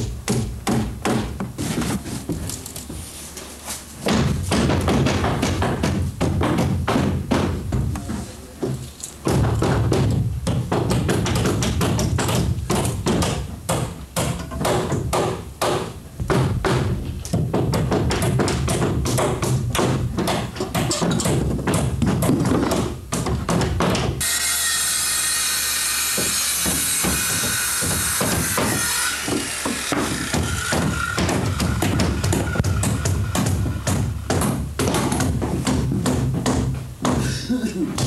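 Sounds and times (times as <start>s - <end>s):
circular saw cutting board: 24.2s - 33.3s.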